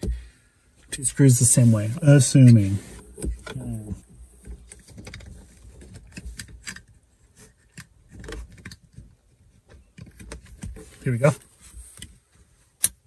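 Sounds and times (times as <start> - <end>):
plastic parts clicking and rattling: 4.4 - 11.0.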